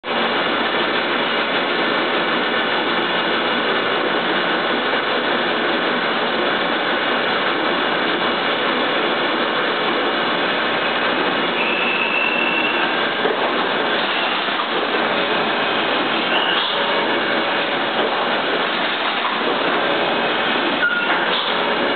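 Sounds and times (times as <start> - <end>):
slicing machine mechanical noise: 10.8 - 21.9.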